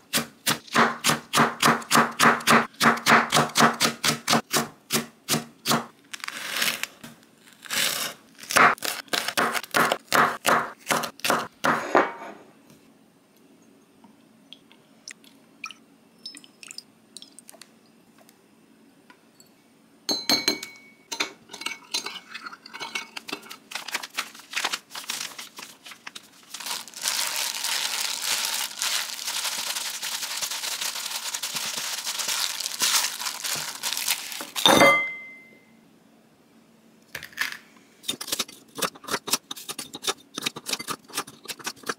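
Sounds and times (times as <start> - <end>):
dishes and utensils clinking: 19.4 - 23.6, 34.6 - 35.6.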